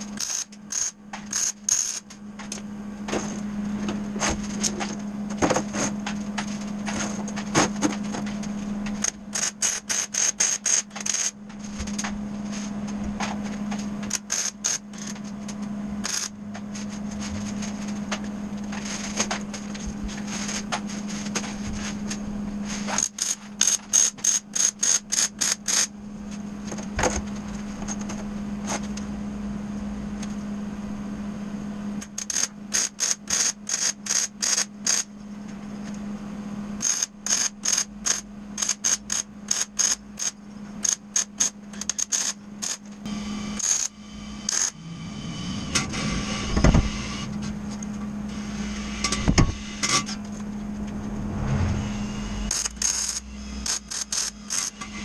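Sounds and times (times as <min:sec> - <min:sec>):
welder humming: 0:36.8 - 0:55.0
welder crackling pulses: 0:50.6 - 0:54.9.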